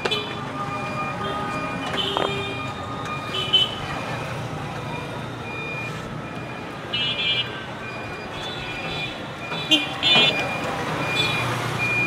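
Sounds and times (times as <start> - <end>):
street traffic: 0.0 - 12.0
electronic vehicle horn beeps: 7.0 - 12.0.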